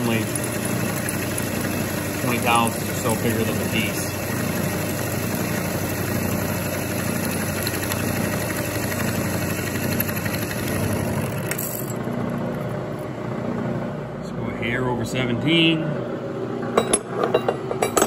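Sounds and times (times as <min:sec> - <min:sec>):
milling machine cutting metal: 0:00.0 - 0:12.4.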